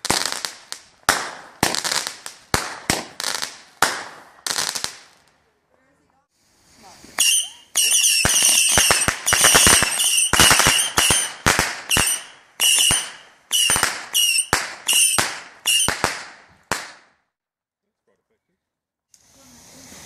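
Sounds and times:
firework bangs and crackles: 0.0 - 5.5, 6.7 - 17.2.

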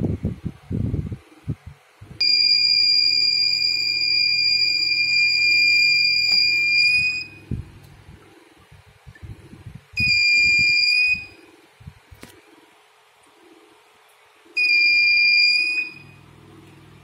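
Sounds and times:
high-pitched buzzer tone: 2.2 - 7.4, 14.6 - 16.2.

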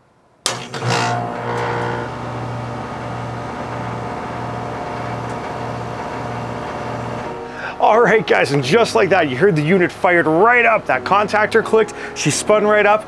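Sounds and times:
air conditioner unit humming: 1.2 - 7.4.

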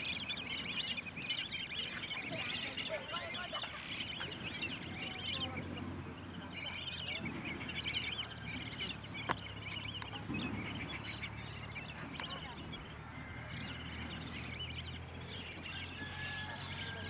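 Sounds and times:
ducks whistling: 0.0 - 17.0
steady low hum: 0.0 - 17.0.

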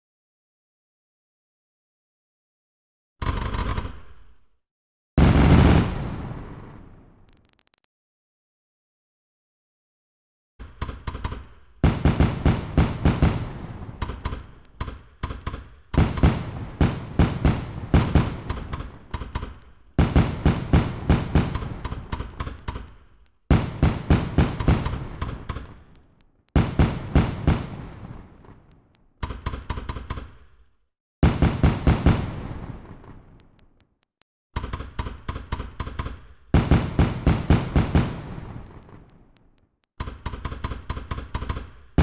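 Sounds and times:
fireworks bursting: 5.2 - 7.9, 11.8 - 14.8, 16.0 - 29.1, 31.2 - 34.0, 36.6 - 39.6.

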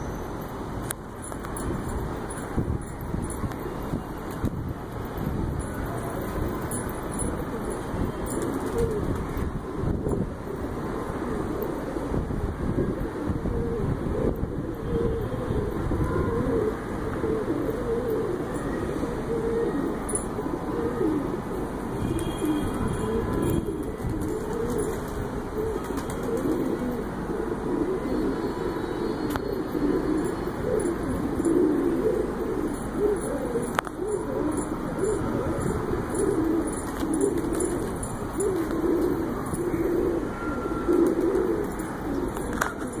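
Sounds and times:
pigeons cooing: 5.6 - 43.0.

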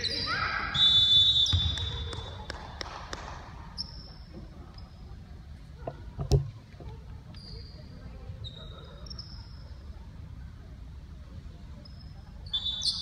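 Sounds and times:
referee's whistle: 0.0 - 2.0, 12.4 - 13.0.

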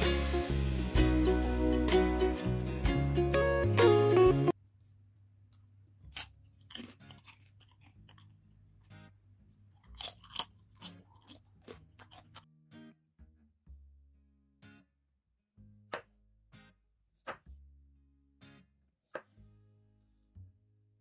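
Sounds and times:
chips crunching: 6.0 - 8.5, 9.5 - 12.4.

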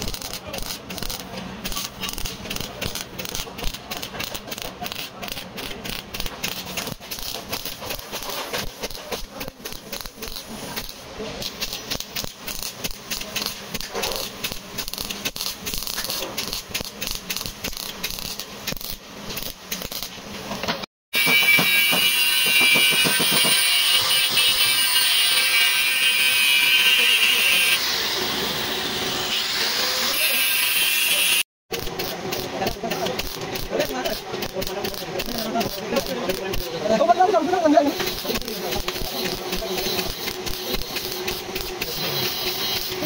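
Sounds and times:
air tool high-pitched hiss: 32.0 - 43.0.

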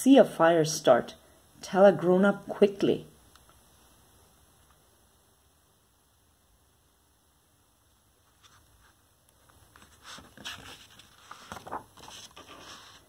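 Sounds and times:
paper pages rustling: 8.2 - 13.0.

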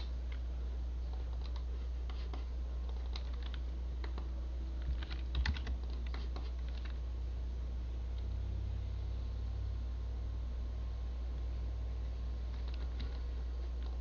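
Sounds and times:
low hum: 0.0 - 14.0
keyboard and mouse clicks: 1.1 - 7.0, 12.5 - 14.0.

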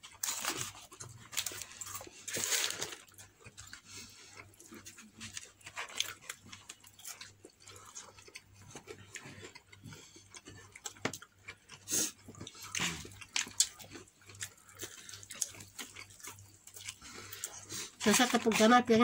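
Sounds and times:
chewing mouth sounds: 3.0 - 18.0.

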